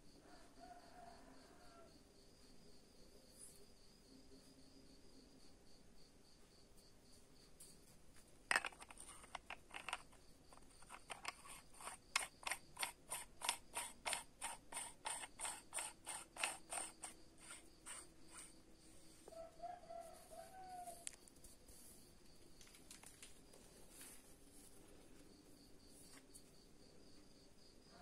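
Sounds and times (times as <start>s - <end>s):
mechanical ratchet clicks: 10.6s - 18.5s.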